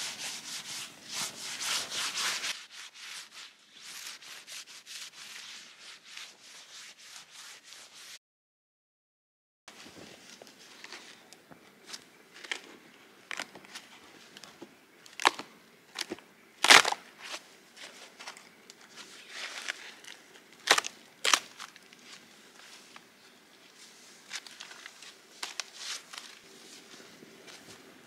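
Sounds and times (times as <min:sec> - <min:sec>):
crumbly snow scrapes: 0:22.0 - 0:27.9.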